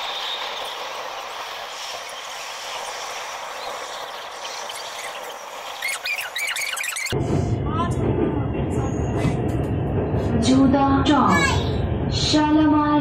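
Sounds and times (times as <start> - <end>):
metro car running noise: 0.0 - 13.0
short chirping squeaks: 4.8 - 7.2.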